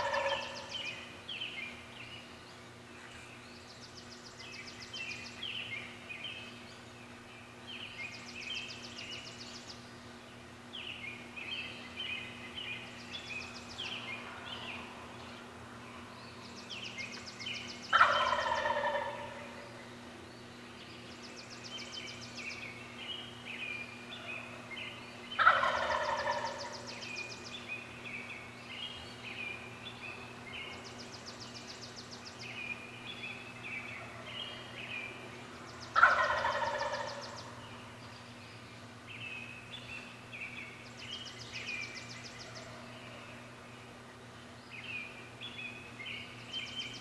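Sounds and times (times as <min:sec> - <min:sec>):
turkey gobbling: 0:00.0 - 0:00.8, 0:17.9 - 0:19.8, 0:25.4 - 0:27.0, 0:35.9 - 0:37.6
songbirds chirping: 0:00.0 - 0:47.0.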